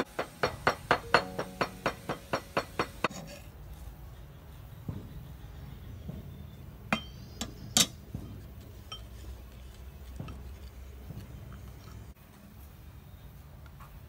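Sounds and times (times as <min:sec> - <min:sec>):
spoon stirring in a bowl: 0:08.4 - 0:12.2.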